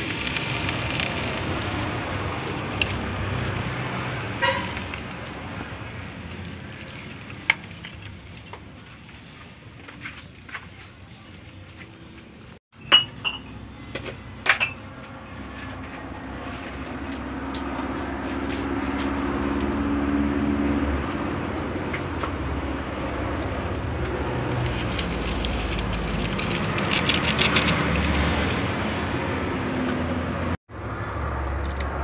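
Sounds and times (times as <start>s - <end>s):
soup boiling hard: 0.0s - 9.8s
fire crackling: 0.0s - 12.6s.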